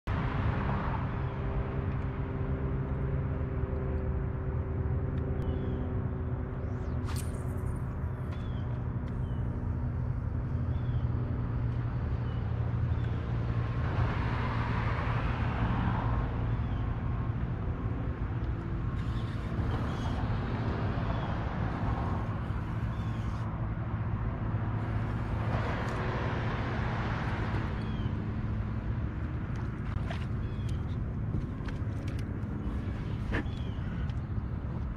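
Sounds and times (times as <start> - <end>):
traffic crossing bridge: 0.1 - 34.9
electric trolling motor humming: 16.0 - 34.9.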